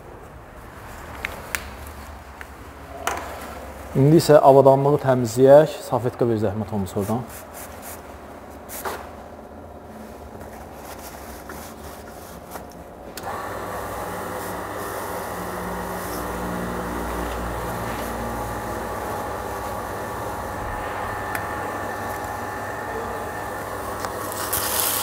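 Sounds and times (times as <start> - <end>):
electric motor running: 13.2 - 25.0.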